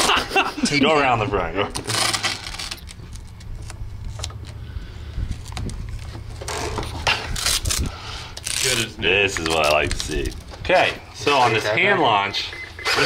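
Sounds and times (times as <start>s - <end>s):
tape ripping off roll: 1.7s - 4.6s, 5.3s - 10.5s
tape crinkling and tapping: 1.7s - 10.8s.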